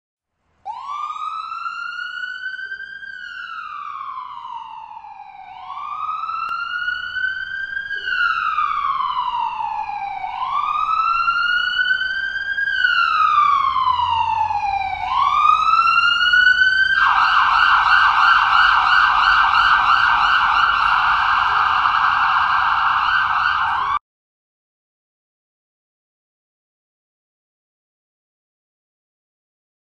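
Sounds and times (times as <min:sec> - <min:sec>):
siren wailing: 0:00.7 - 0:24.0.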